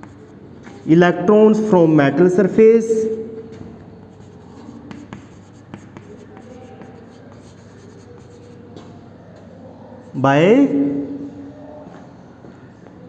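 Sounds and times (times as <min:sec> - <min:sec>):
chalk scratching on chalkboard: 0:00.0 - 0:00.4, 0:04.0 - 0:08.8
chalk tapping on board: 0:00.0 - 0:00.4, 0:04.0 - 0:08.6.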